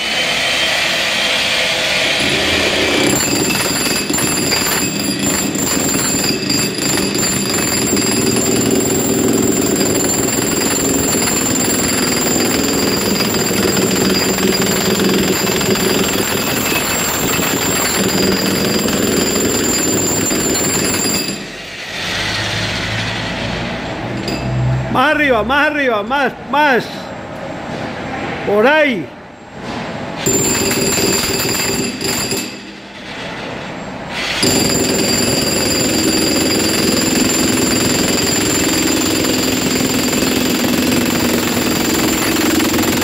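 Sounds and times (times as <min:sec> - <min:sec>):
demolition hammer chiseling: 0:02.0 - 0:22.9, 0:30.2 - 0:43.0.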